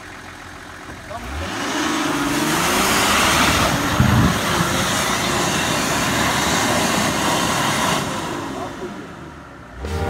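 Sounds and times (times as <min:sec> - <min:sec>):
engine running hard: 0:00.0 - 0:10.0.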